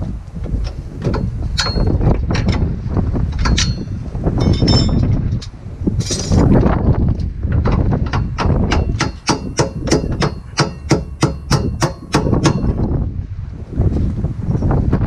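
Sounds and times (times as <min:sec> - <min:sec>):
wind noise on microphone: 0:00.0 - 0:15.0
hammer striking metal: 0:01.1 - 0:02.0, 0:03.4 - 0:05.0, 0:07.7 - 0:12.9.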